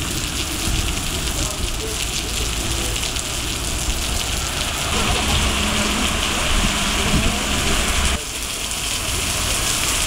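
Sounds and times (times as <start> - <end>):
heavy rain on wet street: 0.0 - 10.0
low rumble: 3.1 - 8.2.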